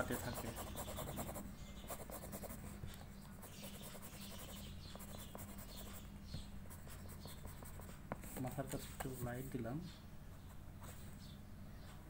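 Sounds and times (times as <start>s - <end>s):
pencil scratching on paper: 0.0s - 6.1s, 6.7s - 9.3s
steady low hum: 0.0s - 12.0s.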